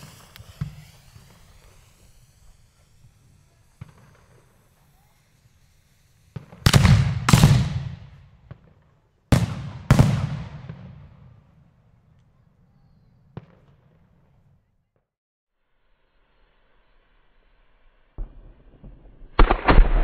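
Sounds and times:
firework shells banging: 0.0 - 8.8
small firework cracks: 0.0 - 14.5.

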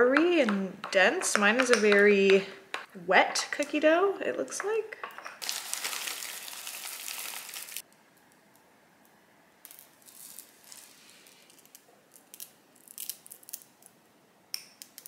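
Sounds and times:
candy bag rustling: 5.4 - 7.8, 9.8 - 12.3.

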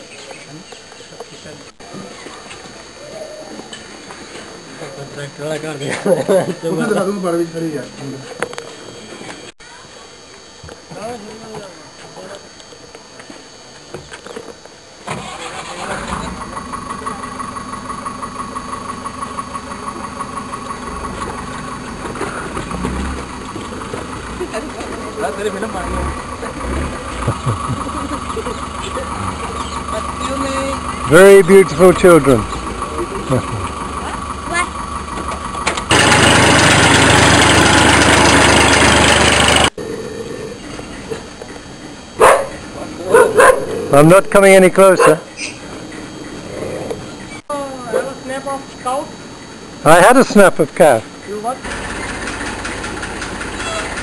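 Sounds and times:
engine running with pitched hum: 12.2 - 44.0, 49.1 - 54.0.

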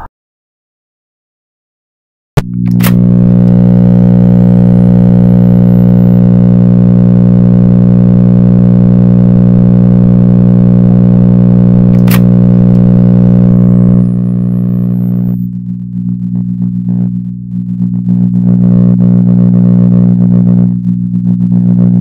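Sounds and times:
click: 2.4 - 3.6, 11.9 - 12.9
loud low drone: 2.4 - 22.0.

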